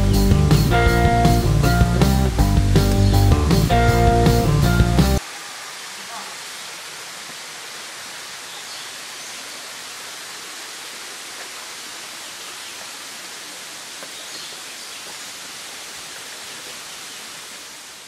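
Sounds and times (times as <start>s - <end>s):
steady background hiss: 5.2s - 18.0s.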